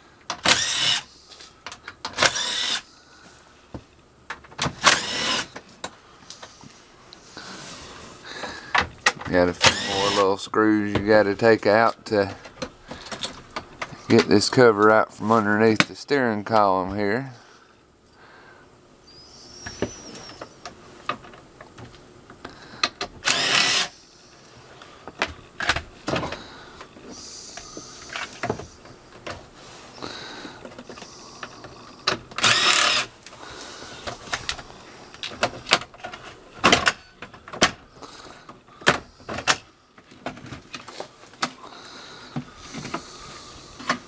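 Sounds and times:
impact driver running: 0.4 - 1.1, 2.2 - 2.9, 4.7 - 5.6, 9.6 - 10.3, 23.2 - 24.0, 32.4 - 33.1.

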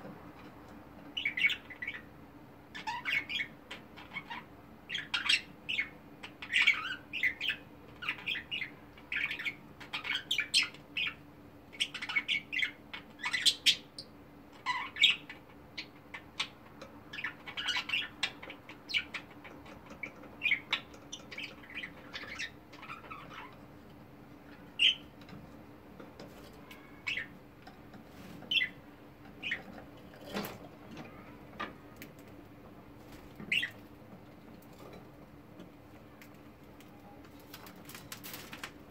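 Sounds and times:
budgerigars chirping: 1.2 - 2.1, 2.7 - 23.6, 24.5 - 25.1, 27.0 - 27.3, 28.5 - 28.8, 29.4 - 29.7, 33.4 - 33.8.

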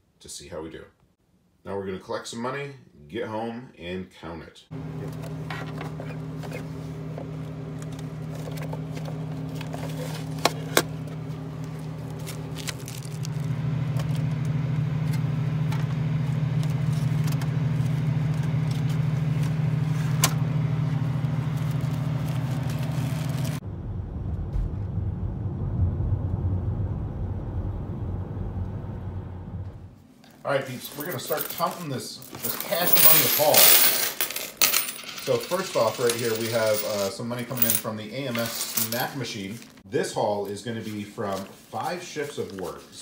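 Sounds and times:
vending machine humming: 4.7 - 24.2, 24.9 - 39.8
car interior road rumble: 20.8 - 30.0.

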